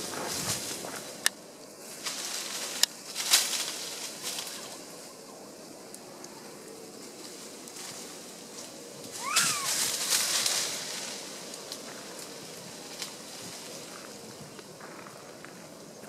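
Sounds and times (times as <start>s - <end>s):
faint outdoor hiss: 0.0s - 16.0s
rush of noise: 6.0s - 15.7s
macaque coo call: 9.2s - 9.9s.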